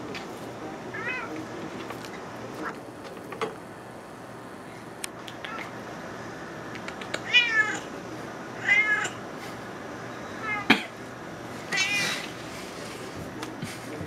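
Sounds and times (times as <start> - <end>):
cat meowing: 0.9 - 1.3, 7.2 - 7.9, 8.6 - 9.2, 10.4 - 10.7, 11.7 - 12.3.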